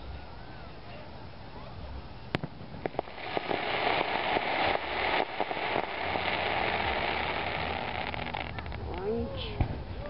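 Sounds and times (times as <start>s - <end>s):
firework crackling: 1.9s - 10.0s
firework sharp pops: 2.3s - 9.8s.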